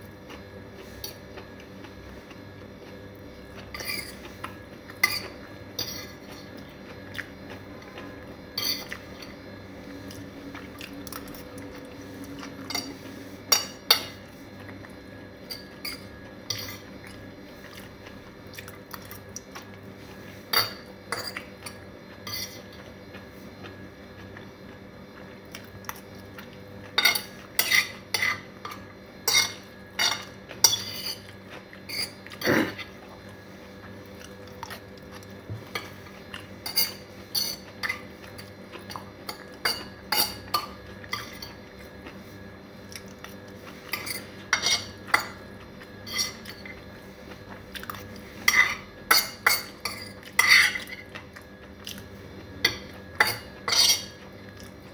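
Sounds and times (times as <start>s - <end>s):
faint steady hum: 0.0s - 54.9s
fork scraping ceramic plate: 3.7s - 4.3s, 5.0s - 6.3s, 15.5s - 16.9s, 20.5s - 22.7s, 27.0s - 32.9s, 36.6s - 38.5s, 43.9s - 45.4s, 46.0s - 46.8s, 48.4s - 51.0s, 52.7s - 54.2s.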